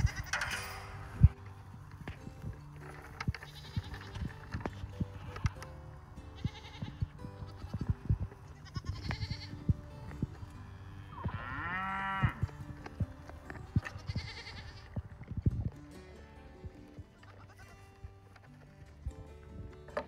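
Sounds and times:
goat bleating: 0.0 - 0.5, 2.9 - 15.5, 16.8 - 19.0.

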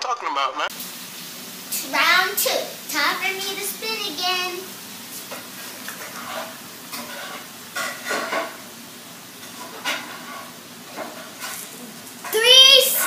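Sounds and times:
low hiss: 0.7 - 6.0.

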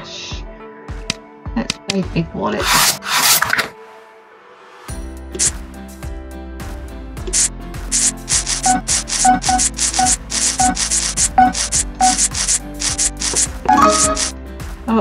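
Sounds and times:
rasping scratch strokes: 2.6 - 3.7, 7.3 - 14.3
background music loop: 5.3 - 5.7, 7.2 - 15.0.

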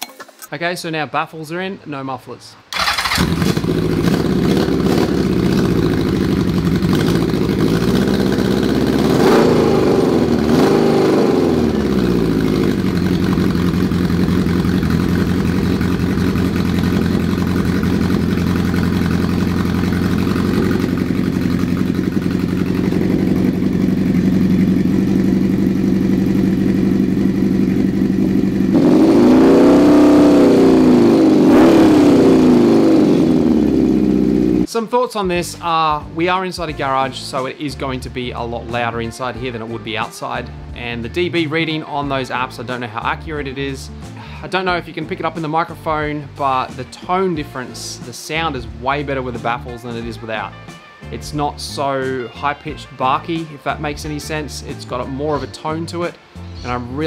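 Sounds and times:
motorcycle engine idling and revving: 2.8 - 34.7.

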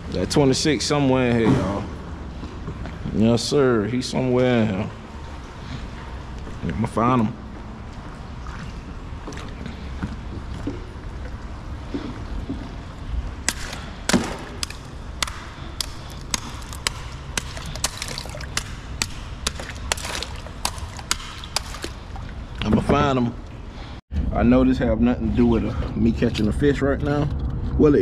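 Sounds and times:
water lapping: 4.5 - 24.0.

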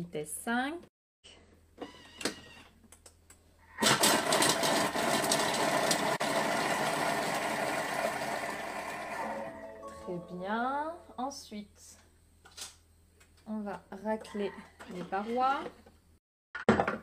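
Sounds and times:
food processor clatter: 3.8 - 9.3
food processor blade whirring: 3.8 - 9.5.

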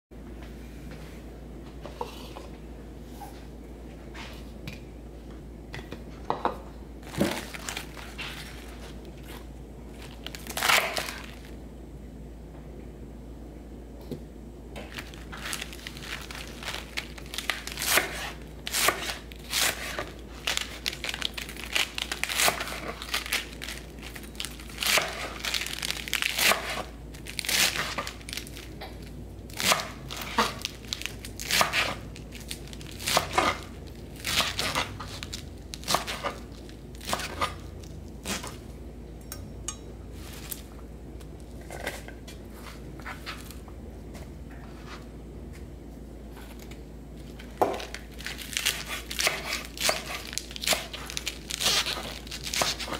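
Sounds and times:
knife cutting lettuce on board: 17.8 - 20.1, 26.4 - 26.9, 31.4 - 32.0, 37.0 - 37.6, 48.6 - 52.9.

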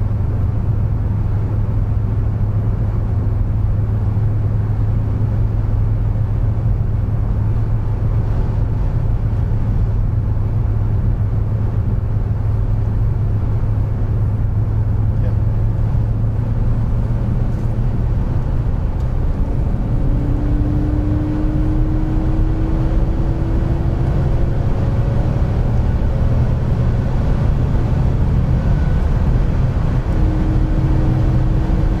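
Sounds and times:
car engine drone: 0.0 - 32.0
tyre and road noise: 0.0 - 32.0.

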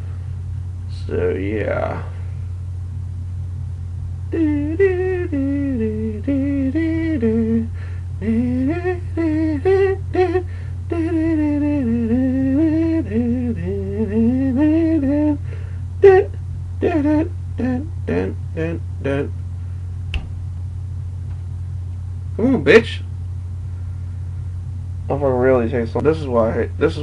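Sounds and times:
low background hum: 0.0 - 27.0
man humming a tune: 4.3 - 19.4.

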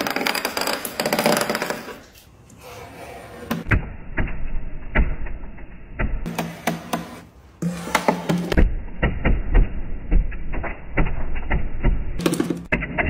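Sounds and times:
razor scraper scraping countertop: 0.3 - 3.7, 6.3 - 8.6.

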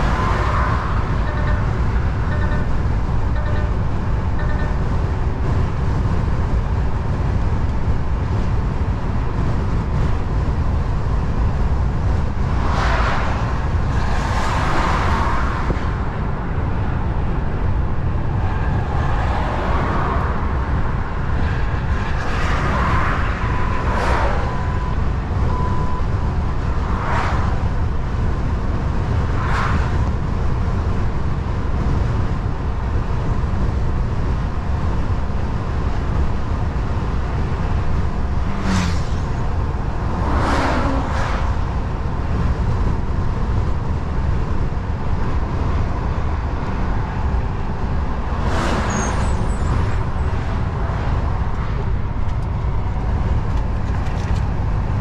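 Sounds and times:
vehicles whooshing past: 0.0 - 5.3, 11.0 - 30.4, 37.0 - 43.3, 44.7 - 55.0
truck engine and road rumble: 0.0 - 55.0.

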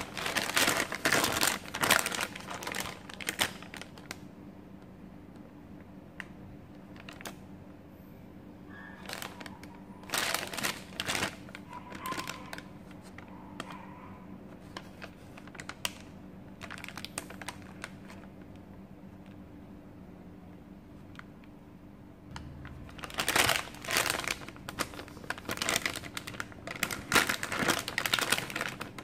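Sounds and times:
plastic snack pouch crinkling: 0.0 - 4.3, 6.2 - 7.4, 8.8 - 13.8, 14.6 - 18.6, 22.3 - 29.0.

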